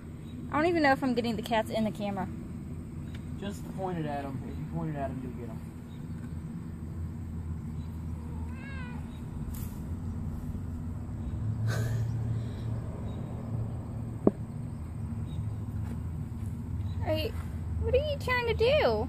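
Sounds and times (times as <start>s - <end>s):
steady low hum: 0.0s - 19.0s
kitten meowing: 8.2s - 9.4s.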